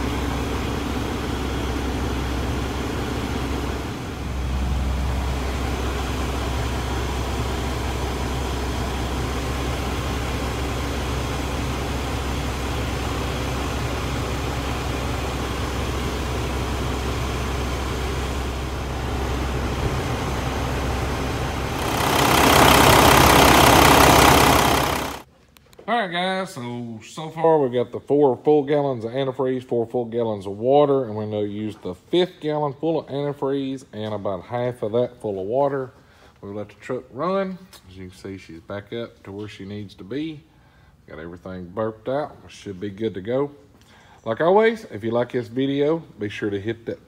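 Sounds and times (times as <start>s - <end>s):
diesel truck engine idling: 0.0s - 25.2s
loud rushing noise: 19.6s - 25.2s.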